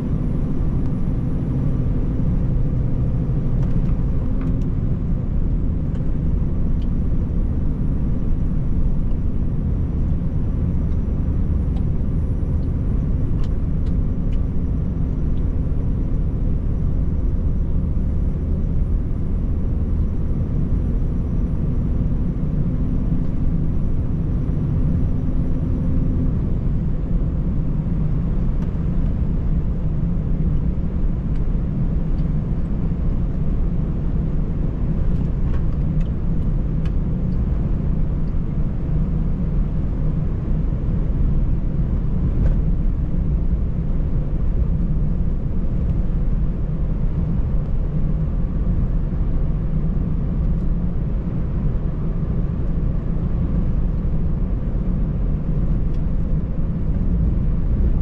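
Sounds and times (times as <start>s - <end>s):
road noise: 0.0s - 58.0s
truck diesel engine drone: 0.0s - 58.0s.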